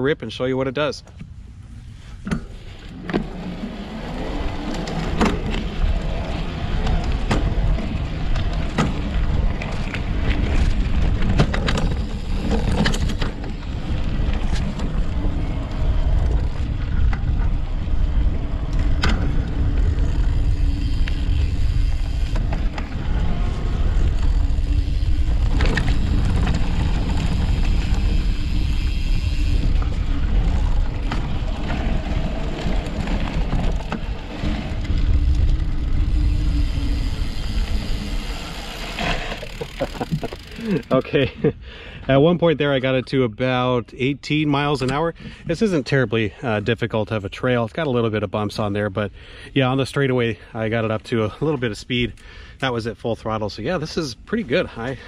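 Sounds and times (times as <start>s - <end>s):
knobby tyres rumbling on dirt: 0.0s - 55.0s
wind: 0.0s - 55.0s
bike knocks and rattles: 2.2s - 40.9s.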